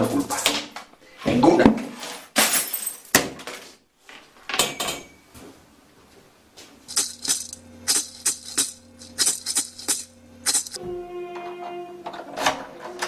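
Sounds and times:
shaker-like rattling music: 6.9 - 10.8.

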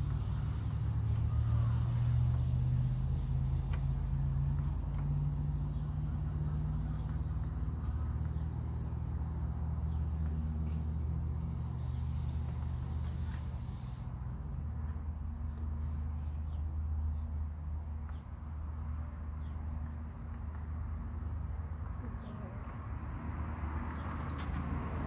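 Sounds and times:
low motor hum: 0.0 - 25.0.

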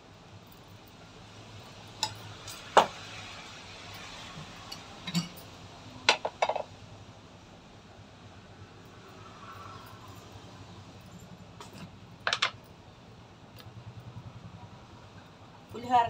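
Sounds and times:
metal pans clanking on grate: 4.7 - 5.4.

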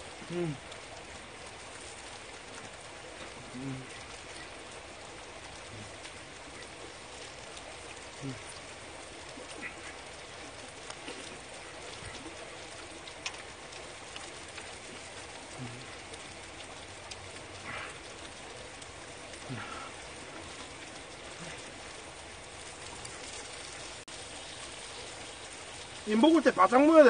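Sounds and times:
steady rain falling: 0.0 - 27.0
faint clicks and knocks: 10.6 - 15.4.

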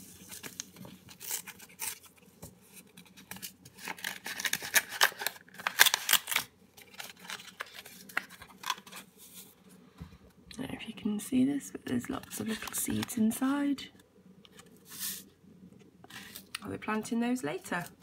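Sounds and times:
paper crinkling and rustling: 0.0 - 9.6, 11.9 - 13.4.

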